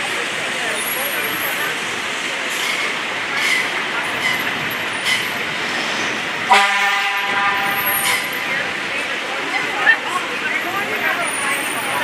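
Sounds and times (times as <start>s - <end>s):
traffic noise: 0.0s - 12.0s
horn toot: 6.5s - 7.9s.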